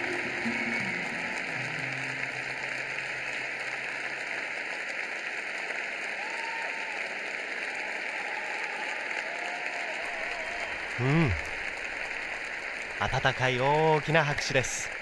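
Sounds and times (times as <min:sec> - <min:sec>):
faint calls from crowd: 0:00.0 - 0:04.4
audience applauding: 0:00.0 - 0:15.0.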